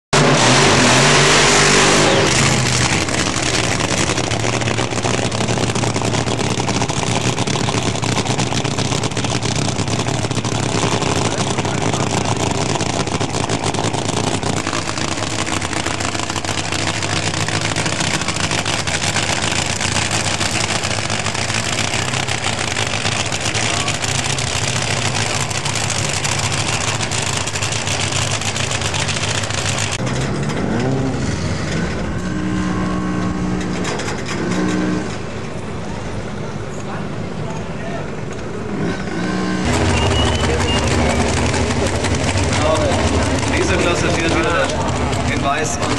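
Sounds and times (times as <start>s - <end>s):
dragster engine idle rumble: 2.7s - 30.3s, 39.7s - 45.9s.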